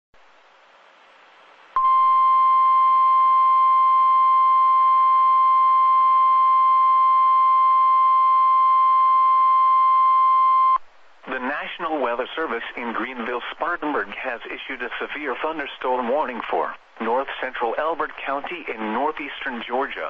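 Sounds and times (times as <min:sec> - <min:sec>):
faint hiss: 0:00.2 - 0:01.8, 0:10.8 - 0:20.0
loud steady alarm beep: 0:01.8 - 0:10.8.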